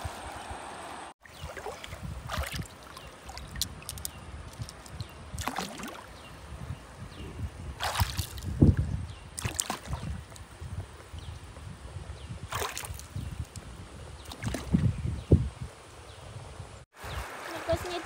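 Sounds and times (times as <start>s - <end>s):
hands splashing in water: 1.4s - 6.1s, 7.8s - 8.5s, 9.4s - 10.1s.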